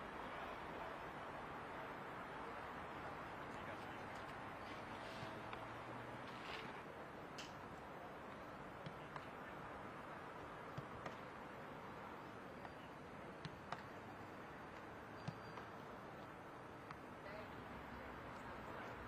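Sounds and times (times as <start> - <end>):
faint open-air hiss: 0.0 - 19.0
footballs kicked and caught: 8.3 - 9.4, 10.7 - 11.3, 12.6 - 14.0, 14.7 - 17.0.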